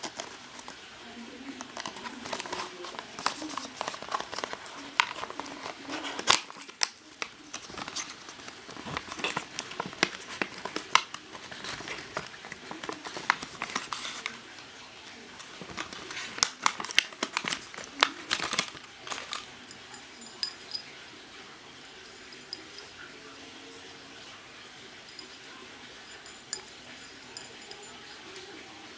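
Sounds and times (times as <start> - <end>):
cardboard box crinkling: 0.0 - 0.9, 1.6 - 14.6, 15.4 - 19.5.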